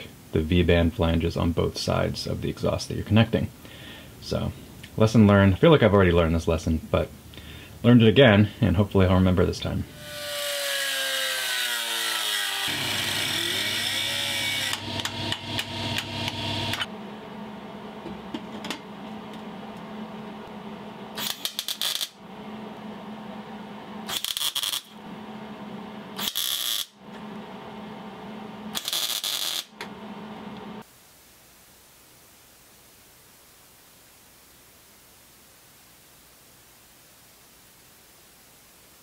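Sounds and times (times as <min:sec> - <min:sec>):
angle grinder grinding metal: 0:10.0 - 0:16.9, 0:21.2 - 0:22.2, 0:24.1 - 0:25.0
steady low hum: 0:12.7 - 0:26.2.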